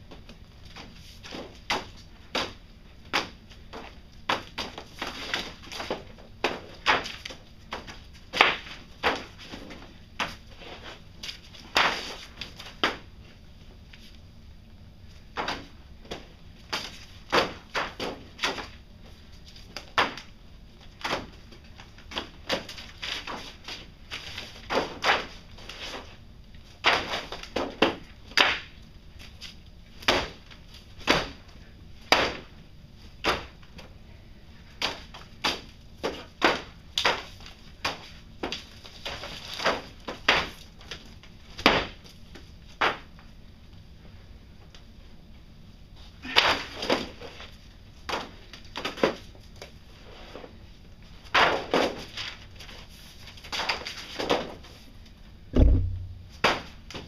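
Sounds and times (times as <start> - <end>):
low background hum: 0.0 - 57.0
sharp knocks and thuds: 55.6 - 56.7.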